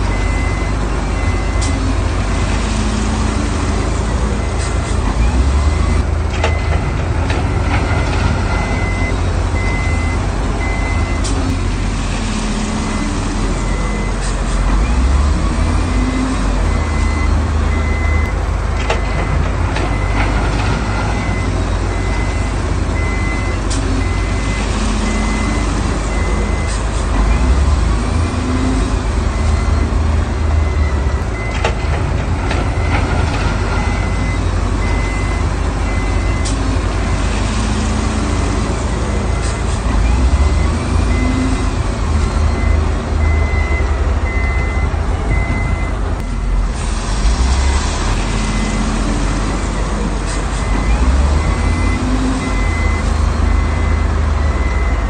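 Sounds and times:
reversing alarm beeping: 0.0s - 2.0s, 4.0s - 6.9s, 7.5s - 11.3s, 12.8s - 26.8s, 27.4s - 31.8s, 32.6s - 37.3s, 38.9s - 46.7s, 50.6s - 55.0s
diesel machinery rumbling: 0.0s - 55.0s.

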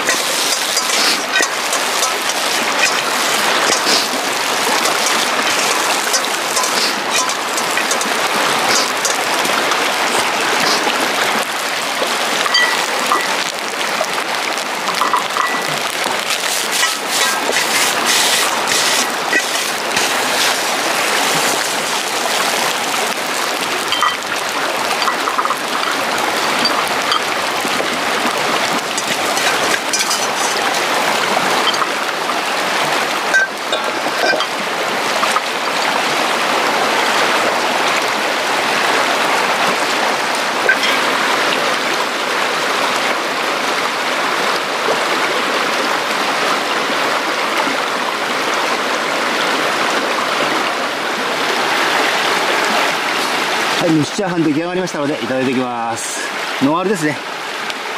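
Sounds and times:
metal ladle clinking on wok: 0.0s - 3.1s, 4.8s - 9.3s, 23.9s - 24.2s, 28.9s - 31.0s, 31.6s - 31.9s, 33.4s - 34.6s, 40.7s - 41.1s
stream running over rocks: 0.0s - 57.9s.

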